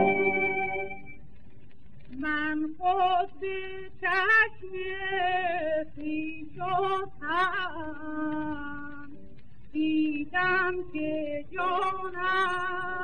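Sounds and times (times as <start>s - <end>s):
string accompaniment: 0.0s - 1.1s
woman singing with vibrato: 0.0s - 1.1s, 2.2s - 9.2s, 9.8s - 13.0s.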